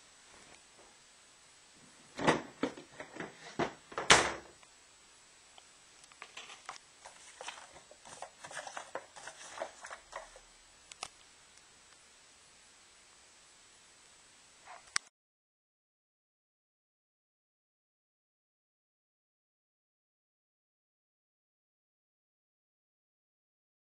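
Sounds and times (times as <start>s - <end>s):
knocks and bumps at a closet: 2.1s - 4.5s.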